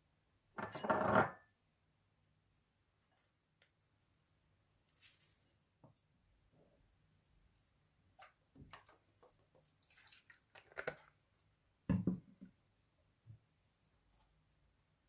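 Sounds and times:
sauce pouring and dripping: 0:08.2 - 0:11.2.

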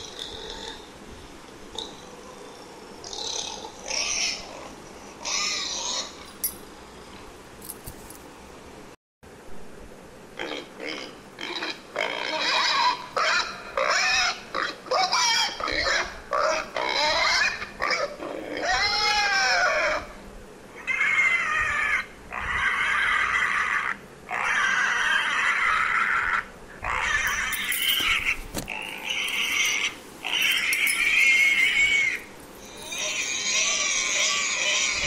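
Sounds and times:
pig squealing: 0:00.0 - 0:00.9, 0:03.0 - 0:06.3, 0:10.4 - 0:35.0.

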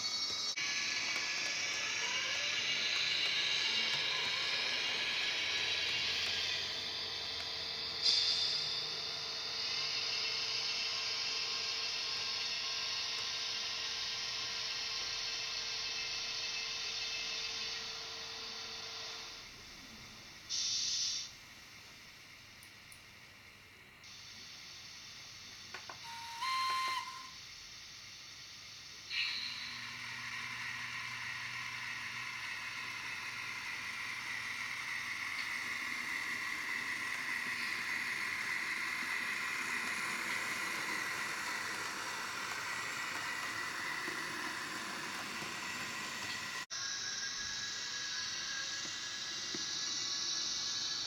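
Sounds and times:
locomotive motor whine: 0:00.0 - 0:19.5, 0:29.1 - 0:51.0
air hiss: 0:00.0 - 0:23.2, 0:24.0 - 0:29.8, 0:46.6 - 0:51.0.

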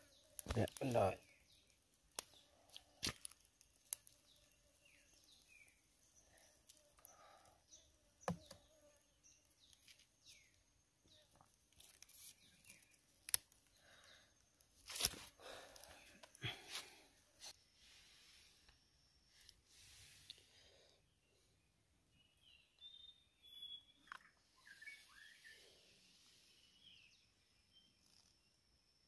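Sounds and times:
bird chirping: 0:04.2 - 0:14.4, 0:21.1 - 0:29.0.

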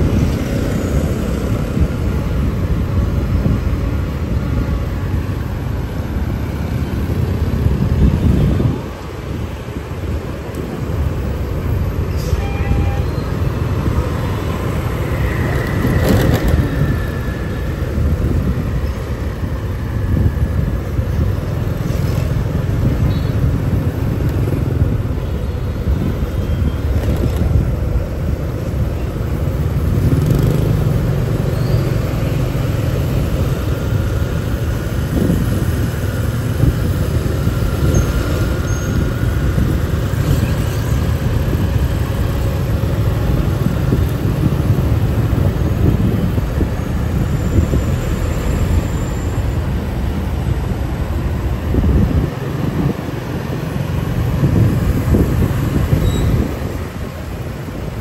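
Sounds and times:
motorbike engine and road noise: 0:00.0 - 0:58.0
passing motorbikes and cars: 0:00.0 - 0:58.0.

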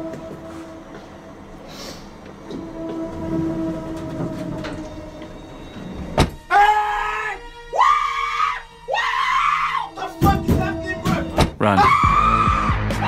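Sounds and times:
elevator low rumble: 0:00.0 - 0:06.5
person screaming: 0:06.5 - 0:10.0, 0:11.8 - 0:13.0.

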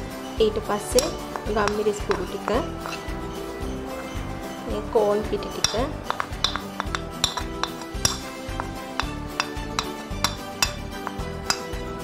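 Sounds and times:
metal spoon clinking ceramic bowl: 0:00.9 - 0:03.4, 0:05.4 - 0:12.0.

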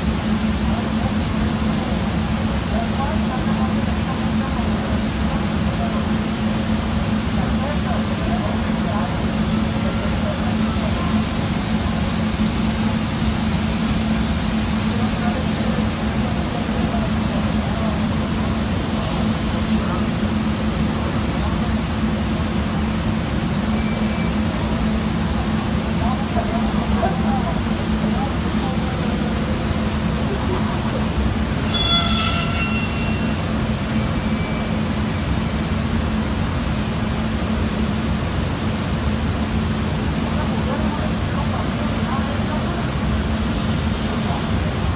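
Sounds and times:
high-pitched squeal: 0:31.6 - 0:33.4.

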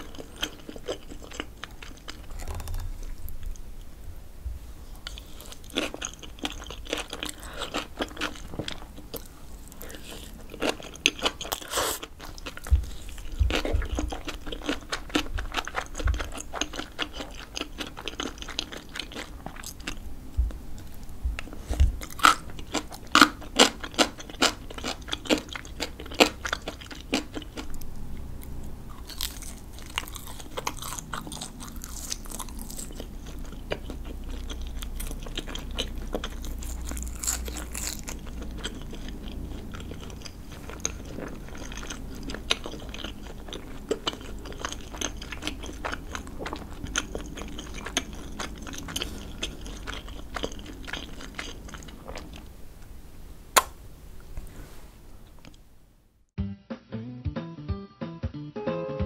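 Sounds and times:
person chewing crunchy food: 0:00.0 - 0:03.9, 0:05.0 - 0:52.6.

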